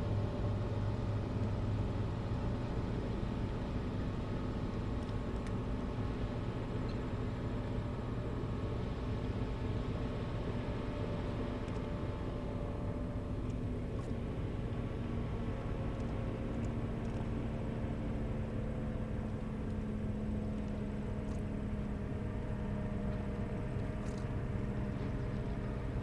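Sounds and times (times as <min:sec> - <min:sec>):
boat engine droning: 0:05.7 - 0:26.0.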